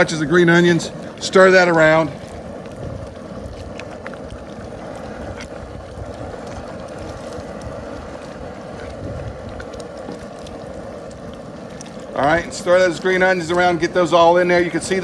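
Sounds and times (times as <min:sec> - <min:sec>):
fire rushing under pot: 0:00.0 - 0:15.0
thick rice mixture boiling: 0:00.0 - 0:15.0.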